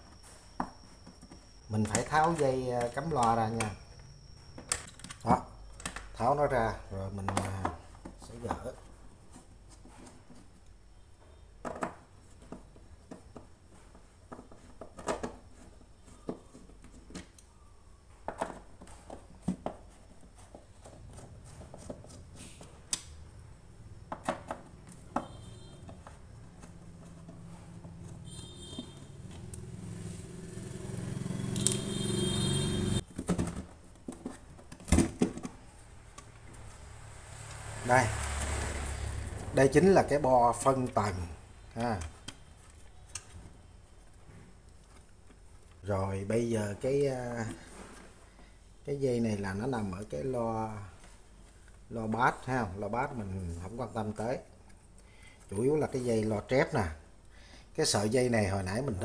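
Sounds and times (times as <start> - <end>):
metal and plastic clicks and knocks: 4.6 - 6.2, 7.2 - 8.7, 11.6 - 17.4.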